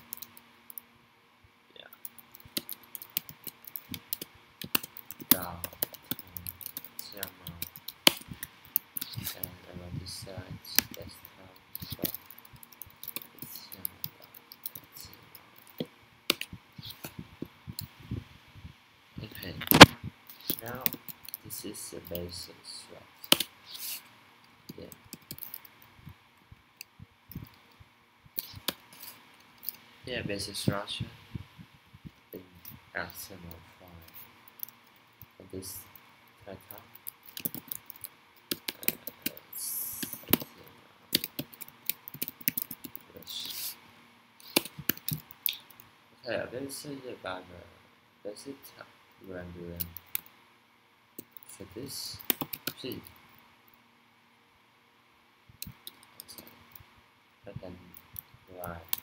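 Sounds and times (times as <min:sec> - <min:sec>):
computer keys clicking: 0:00.0 - 0:00.9, 0:01.9 - 0:09.6, 0:10.8 - 0:17.1, 0:19.3 - 0:22.2, 0:23.2 - 0:23.8, 0:24.7 - 0:25.8, 0:28.4 - 0:28.8, 0:34.0 - 0:35.3, 0:36.7 - 0:43.5, 0:44.4 - 0:45.9, 0:49.8 - 0:50.3, 0:51.2 - 0:51.5, 0:52.1 - 0:53.2, 0:55.6 - 0:56.8, 0:57.9 - 0:59.0
keyboard typing clicks: 0:24.7 - 0:25.8, 0:36.7 - 0:40.5, 0:41.1 - 0:43.1, 0:44.4 - 0:45.8, 0:52.2 - 0:53.1.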